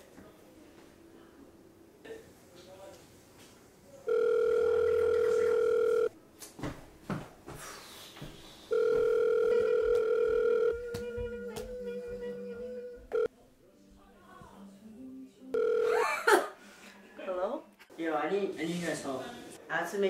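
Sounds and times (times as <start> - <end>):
telephone ringing tone: 4.1 - 6.1, 8.7 - 10.9, 15.6 - 16.0.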